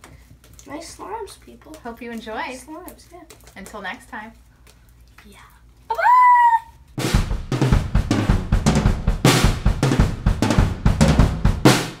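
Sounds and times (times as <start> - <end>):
drum-kit beat music: 7.0 - 12.0.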